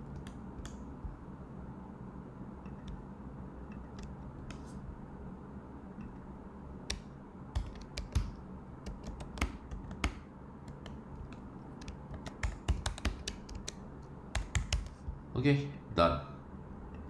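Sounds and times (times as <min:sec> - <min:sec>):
keyboard key clicks: 0:06.9 - 0:15.0.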